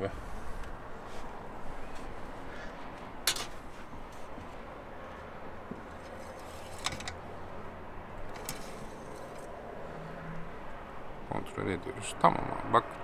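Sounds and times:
metal dipstick scraping: 5.9s - 7.2s, 8.3s - 9.5s.

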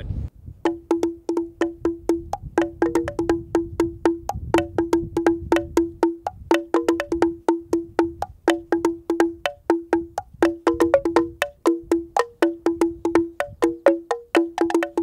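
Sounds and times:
wooden xylophone strikes: 0.6s - 15.0s.

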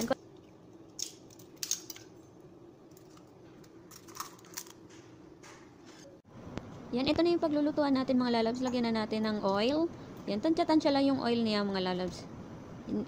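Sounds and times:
eggshell clicking and crackling: 0.4s - 2.2s.

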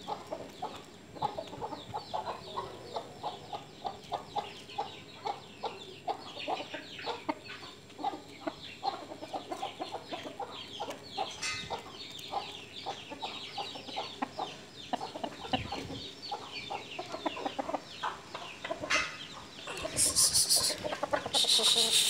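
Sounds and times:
high short chirps: 19.7s - 22.0s
rooster clucking: 19.7s - 22.0s.

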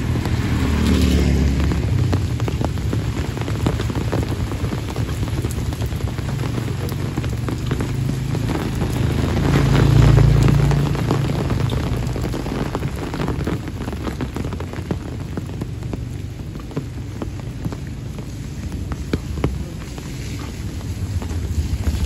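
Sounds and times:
motorbike engine passing: 0.0s - 13.2s
rain on wet road and leaves: 0.0s - 22.0s
drops ticking: 1.6s - 19.8s.

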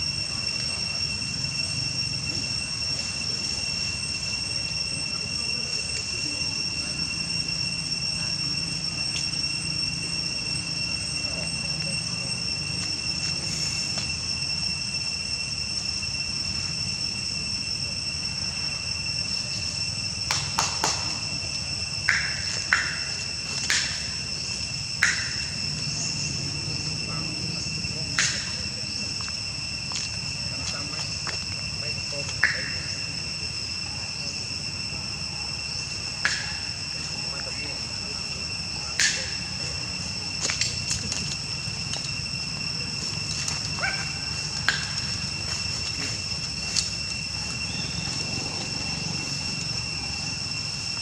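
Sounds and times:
insects droning: 0.0s - 51.0s
sharp high chirps: 0.0s - 51.0s.

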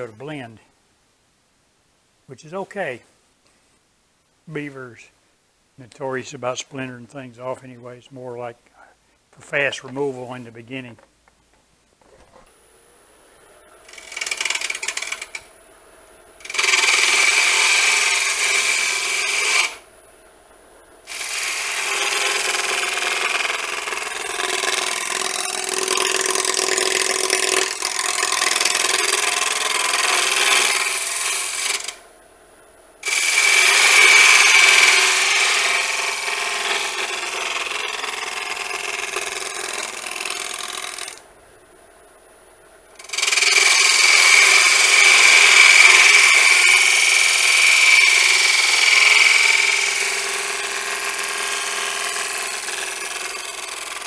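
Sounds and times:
faint lathe whine: 12.0s - 54.0s
cutter scraping spinning log: 13.8s - 15.5s, 16.4s - 19.8s, 21.1s - 32.0s, 33.0s - 41.2s, 43.0s - 54.0s.

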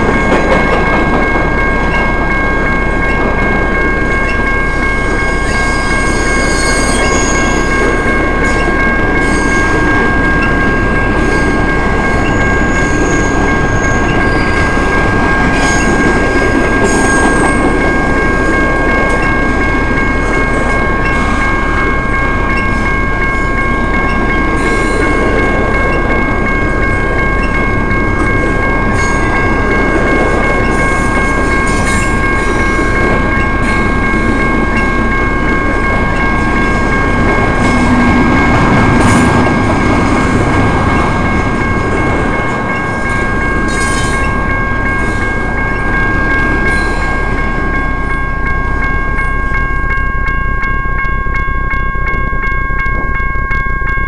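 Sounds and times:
steady high ringing tone: 0.0s - 54.0s
train wheels rumbling on rail: 0.0s - 54.0s
high wheel squeals: 5.4s - 7.8s.

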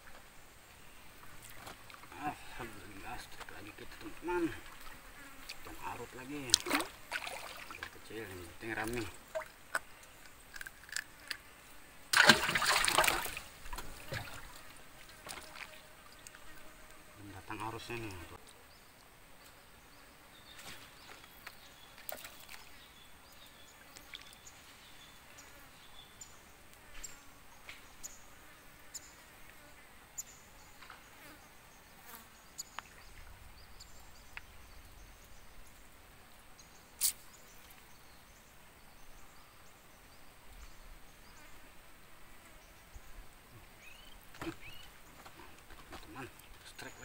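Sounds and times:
faint insect buzzing: 0.0s - 47.0s.

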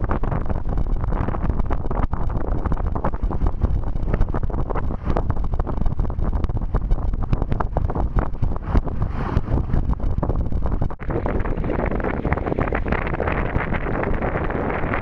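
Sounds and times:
water rushing along hull: 0.0s - 15.0s
wind buffeting microphone: 0.0s - 15.0s.

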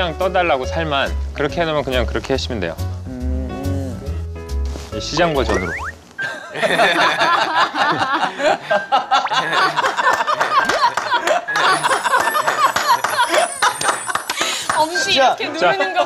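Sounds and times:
people laughing: 6.2s - 14.8s
hand clapping: 10.0s - 15.1s.

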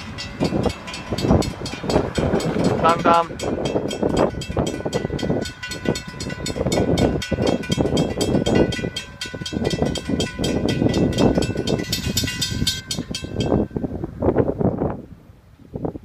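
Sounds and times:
railroad crossing bell ringing: 0.0s - 14.0s.

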